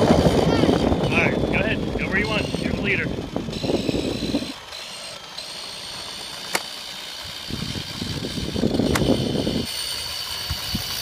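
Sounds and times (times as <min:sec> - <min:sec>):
electric scooter motor whine: 0:00.0 - 0:11.0
wheels rumbling on asphalt: 0:00.0 - 0:11.0
sharp clicks: 0:04.7 - 0:06.8.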